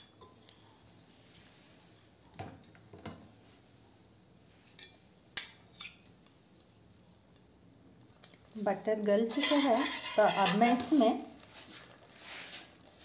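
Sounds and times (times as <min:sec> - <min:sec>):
metal utensils scraping a pot: 0:09.3 - 0:11.2.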